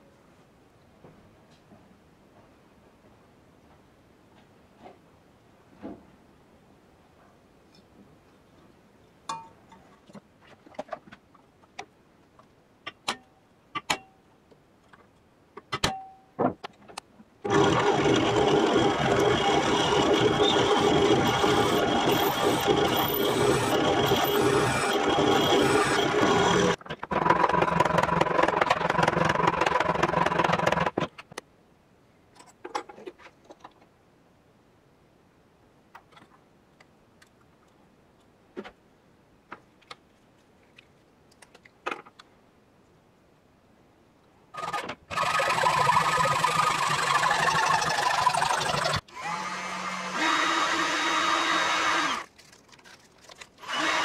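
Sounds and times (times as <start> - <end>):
small power tool grinding metal: 17.5 - 26.8, 45.2 - 52.3.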